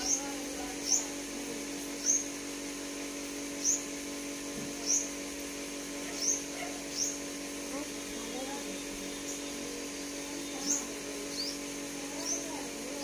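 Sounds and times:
bird chirping high-pitched: 0.0 - 1.2, 2.0 - 2.3, 3.6 - 3.9, 4.8 - 5.2, 6.1 - 7.2, 7.8 - 13.0
steady low hum: 0.0 - 13.0.

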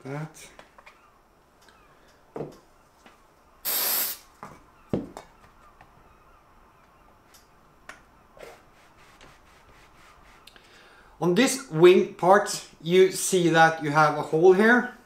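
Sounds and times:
aerosol spray hiss: 3.6 - 4.3.

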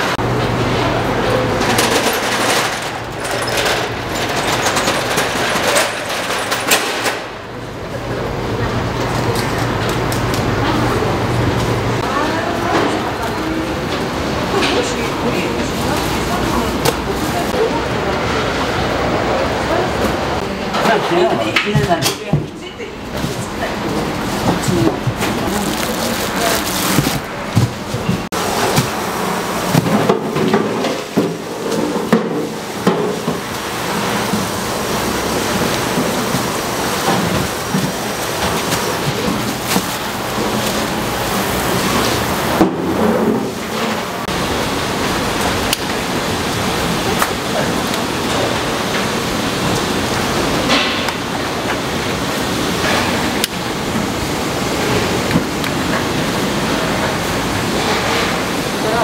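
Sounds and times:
plastic rustling: 23.1 - 29.9, 33.9 - 42.6.

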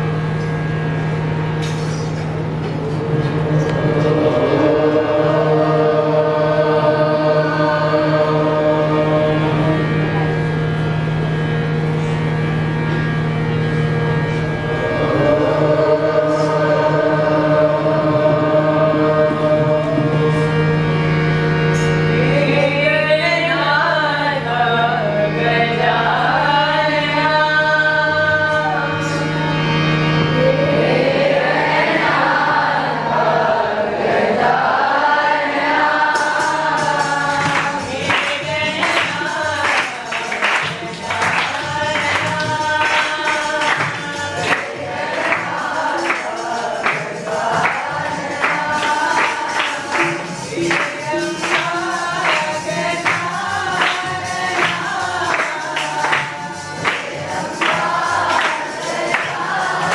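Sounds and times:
steady low drone: 0.0 - 22.9
boys singing in unison: 2.8 - 10.0, 14.8 - 29.6, 30.2 - 59.9
rhythmic handclaps: 20.9 - 22.9, 29.0 - 29.3, 34.6 - 59.9.

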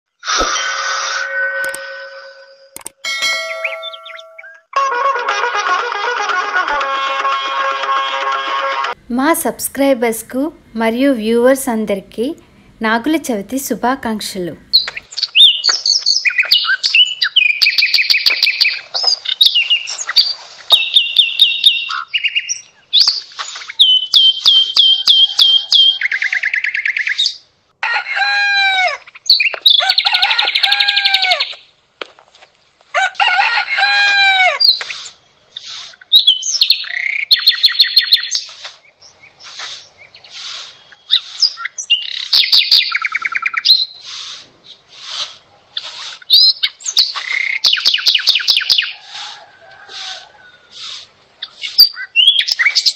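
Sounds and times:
birds chirping and singing: 1.4 - 4.7, 14.7 - 27.5, 28.6 - 31.7, 33.8 - 52.9.

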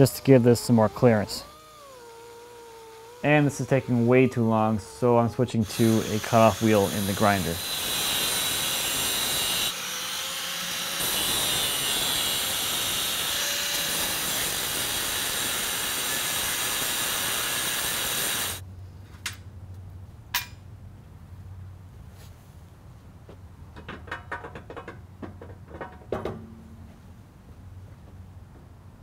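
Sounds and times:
angle grinder cutting steel: 0.0 - 18.6.

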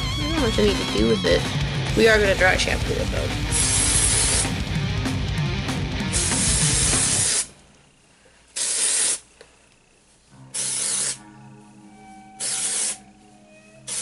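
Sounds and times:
aerosol can spraying: 3.4 - 4.6, 6.1 - 7.5, 8.6 - 9.3, 10.6 - 11.2, 12.4 - 13.0.

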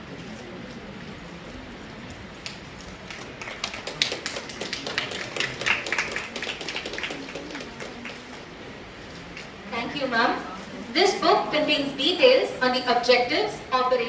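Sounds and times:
audience hand clapping: 2.4 - 8.5.

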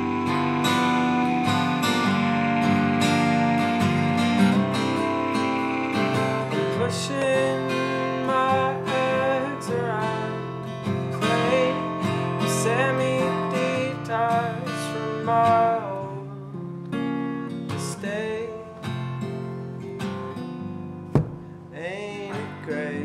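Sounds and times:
tin whistle melody: 0.0 - 8.6
clarinet melody: 0.0 - 10.3
strummed acoustic guitar: 0.0 - 23.0.

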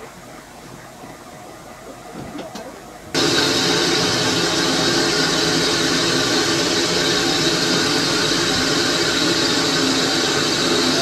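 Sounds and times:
steam hissing: 3.2 - 11.0.

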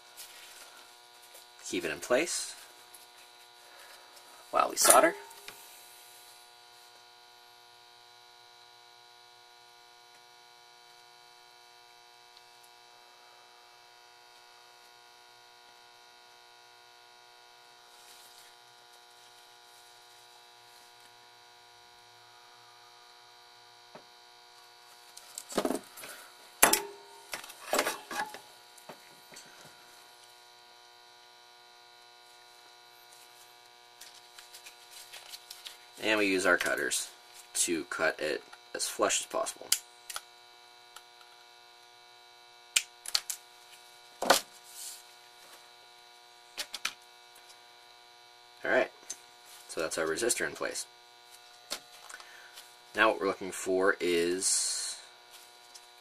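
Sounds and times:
faint electrical hum: 0.0 - 56.0
tools knocking and clattering: 26.6 - 28.4.

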